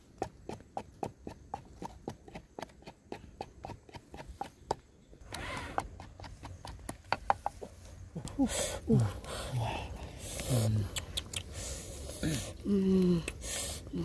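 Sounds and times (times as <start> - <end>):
pestle pounding in mortar: 0.0 - 4.8, 5.8 - 7.6
steady hiss: 7.3 - 14.0.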